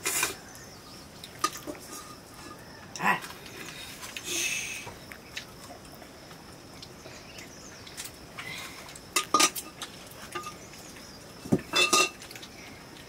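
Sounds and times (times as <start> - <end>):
metal spoon clinking on pot: 11.7 - 12.2.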